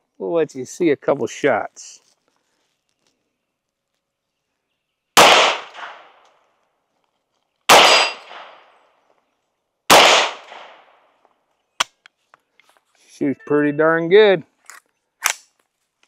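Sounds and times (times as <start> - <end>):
pistol shots with echo: 5.2 - 6.2, 7.7 - 8.7, 9.9 - 11.0.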